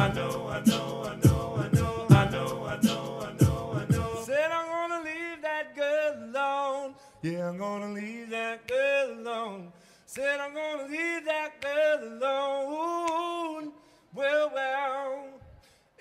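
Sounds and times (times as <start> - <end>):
man singing wordless phrases: 0.0 - 15.6.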